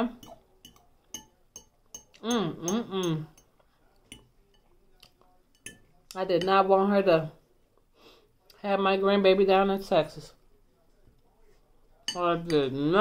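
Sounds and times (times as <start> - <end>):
metal fork clinking on ceramic bowl: 0.1 - 4.8, 5.5 - 6.6
person humming: 2.2 - 3.3.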